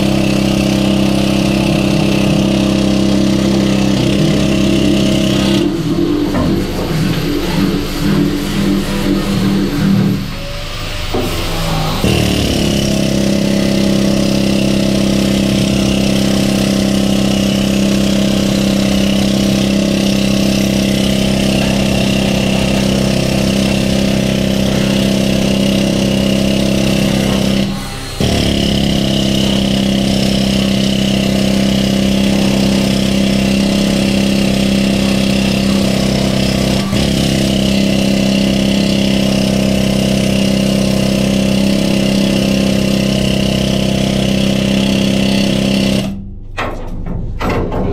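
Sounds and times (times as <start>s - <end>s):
angle grinder grinding steel: 0.0s - 46.2s.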